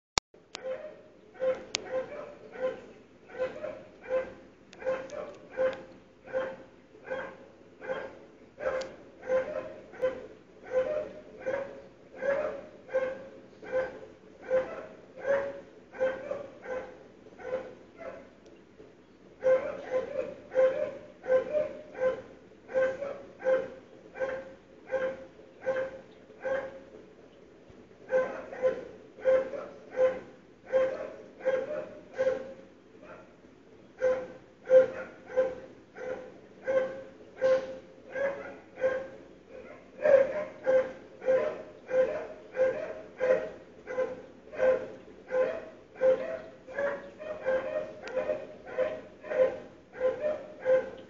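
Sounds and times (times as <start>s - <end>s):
dog barking: 0.6s - 18.4s, 19.4s - 26.8s, 28.1s - 33.4s, 34.0s - 51.0s.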